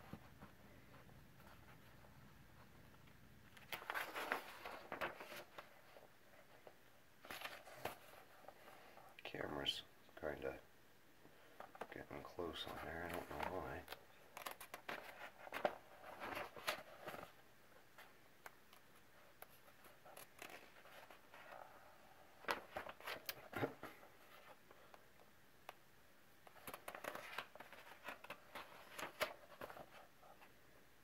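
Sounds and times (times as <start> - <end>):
paper rustling: 3.5 - 8.8, 11.6 - 17.4, 18.0 - 25.0, 26.4 - 30.5.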